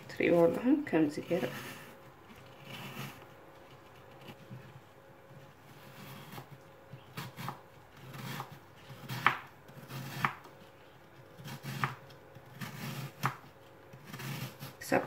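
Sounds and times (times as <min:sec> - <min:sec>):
knife cutting apples on board: 0:05.4 - 0:15.0.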